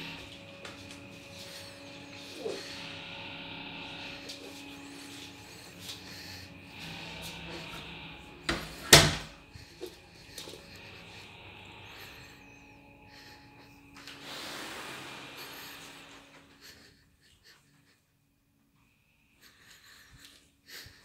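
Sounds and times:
door shutting knocks: 8.5s - 9.4s.

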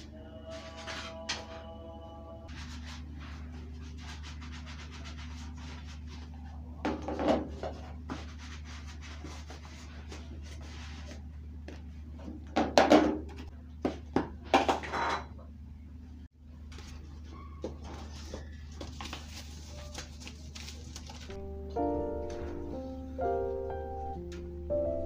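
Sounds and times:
kitchen items clattering: 14.4s - 15.4s.

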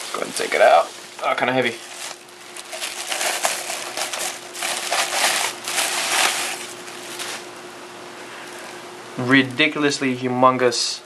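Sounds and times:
bubble wrap crinkling: 0.0s - 7.6s.

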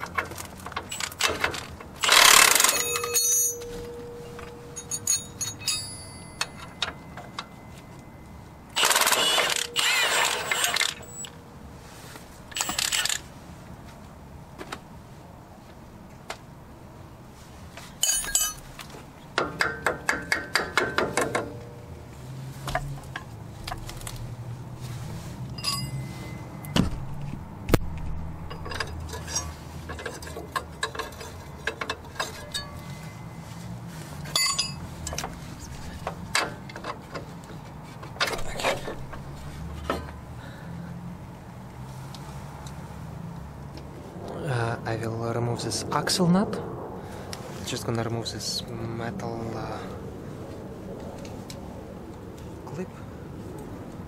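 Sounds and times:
metal clinks: 0.9s - 11.3s, 18.0s - 18.7s, 25.6s - 26.8s, 28.4s - 33.4s, 34.2s - 35.2s.

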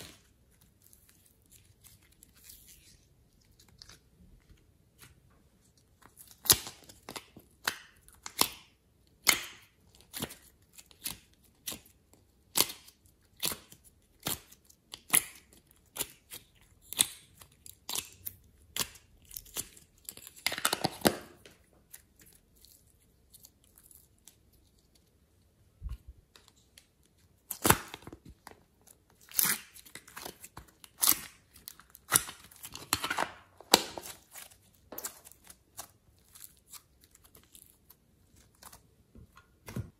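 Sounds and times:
slime crackling and popping: 29.1s - 38.8s.

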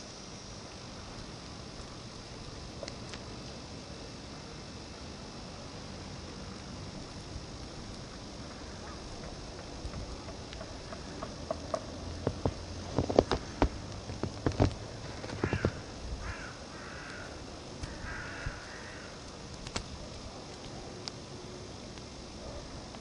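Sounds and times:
wind and falling snow hiss: 0.0s - 23.0s
sharp clicks and knocks: 9.2s - 15.8s.

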